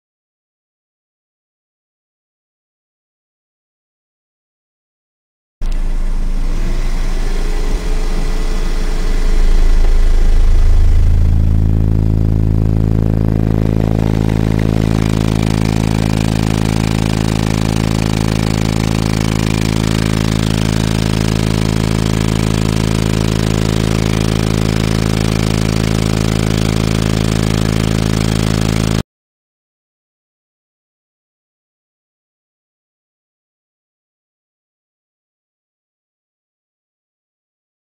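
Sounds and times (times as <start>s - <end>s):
subwoofer low tone drone: 5.6s - 29.0s.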